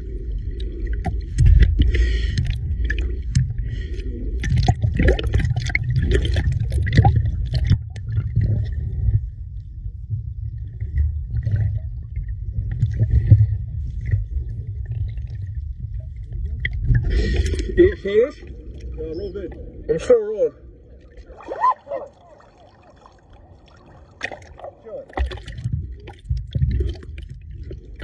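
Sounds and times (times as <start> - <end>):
muffled underwater rumble: 0.0 - 28.0
seawater sloshing and splashing: 20.9 - 28.0.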